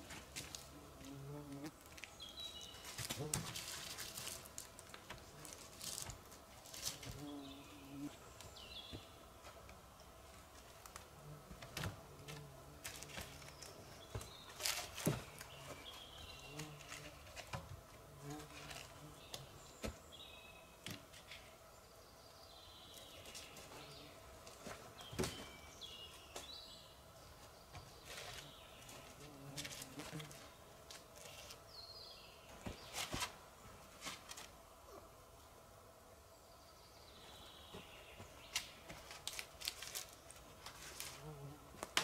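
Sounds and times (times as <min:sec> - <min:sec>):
birds chirping: 0:07.1 - 0:10.2, 0:11.6 - 0:17.6, 0:18.2 - 0:33.8, 0:36.3 - 0:39.1.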